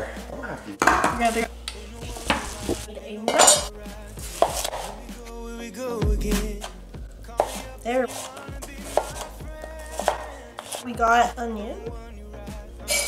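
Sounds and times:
dishes and utensils clattering: 0.0 - 1.5, 3.2 - 3.7
downward bending tone: 6.0 - 7.1.

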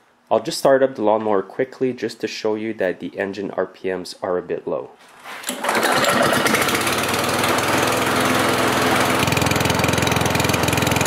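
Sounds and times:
lawn mower engine running: 5.4 - 11.0.

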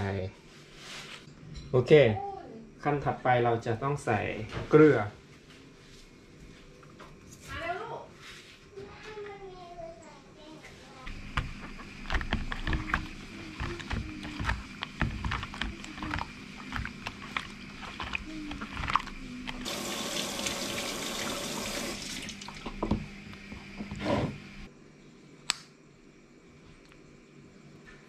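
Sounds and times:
splashing and sloshing water: 12.0 - 23.0.

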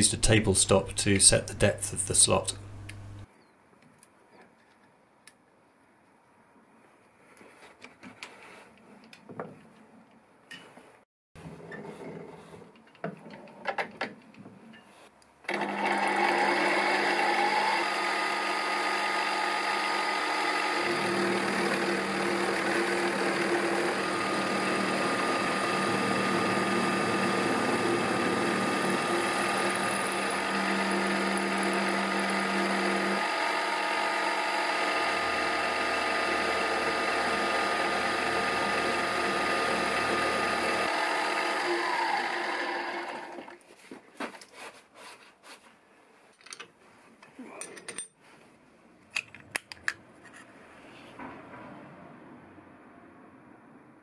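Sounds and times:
milling machine cutting steel: 15.6 - 43.3.

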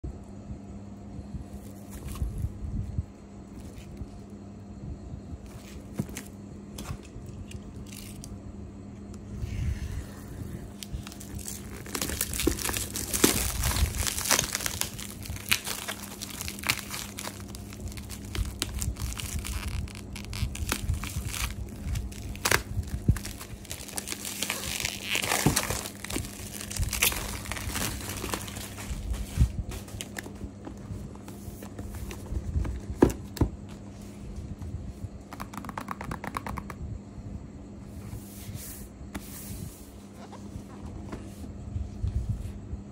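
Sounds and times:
plastic film crinkling and tearing: 10.7 - 30.5.

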